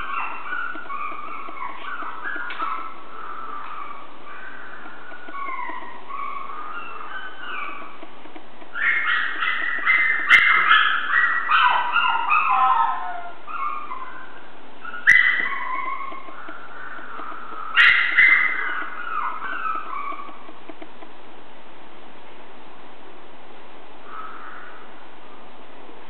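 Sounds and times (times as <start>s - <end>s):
puppies whining and yipping: 0.0s - 20.6s
sharp clicks: 7.2s - 11.2s, 15.1s - 21.1s.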